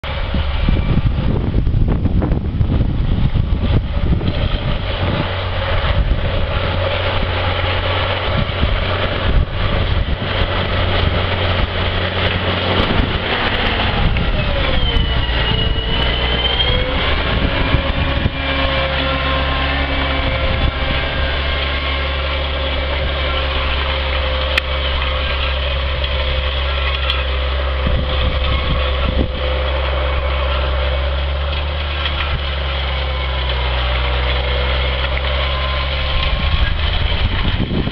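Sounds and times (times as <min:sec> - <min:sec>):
diesel tractor engine: 0:00.0 - 0:37.9
high whine: 0:00.0 - 0:37.9.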